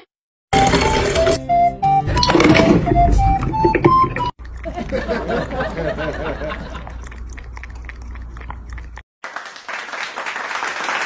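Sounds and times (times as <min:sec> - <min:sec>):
applause: 0:09.2 - 0:11.0.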